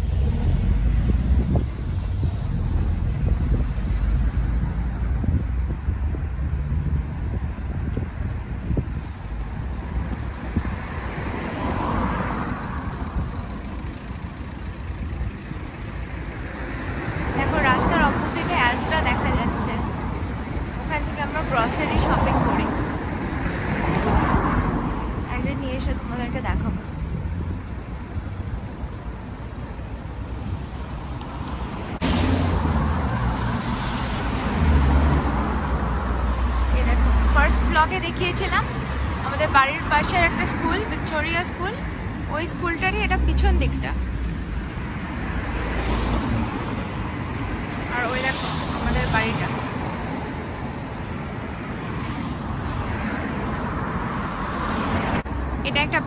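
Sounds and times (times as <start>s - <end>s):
cars driving past: 0.0s - 56.0s
steady low traffic rumble: 0.0s - 56.0s.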